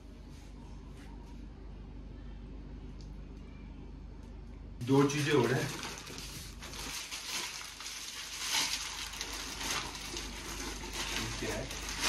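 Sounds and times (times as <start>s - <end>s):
packing paper crinkling: 4.8s - 12.0s.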